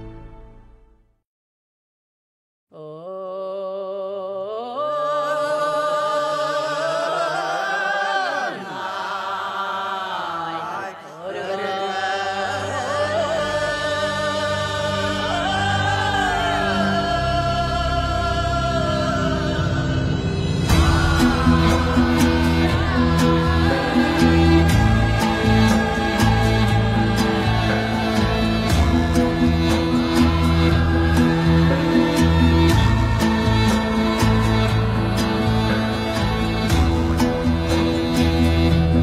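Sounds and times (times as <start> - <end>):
deeper musical accompaniment: 0.0 - 1.1, 13.2 - 39.0
slow sung melody: 2.7 - 39.0.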